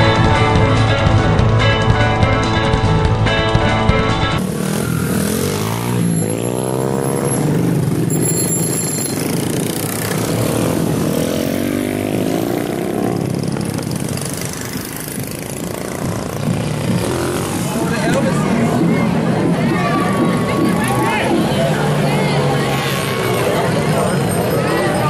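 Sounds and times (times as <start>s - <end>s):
motorcycle engine revving: 4.4s - 18.2s, 21.4s - 24.8s
small motorcycle engines: 4.4s - 18.6s, 19.7s - 25.0s.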